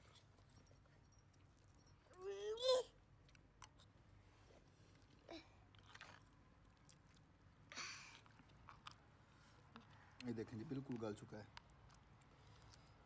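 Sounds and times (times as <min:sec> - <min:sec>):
person chewing: 0:03.2 - 0:04.0, 0:04.9 - 0:10.3, 0:11.5 - 0:13.0.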